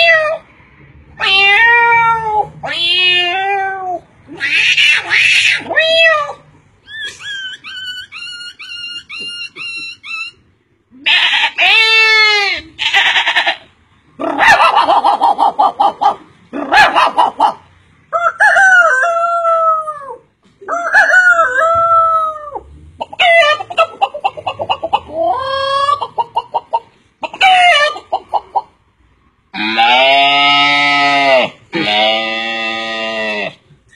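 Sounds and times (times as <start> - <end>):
man imitating chickens: 14.2 - 28.7.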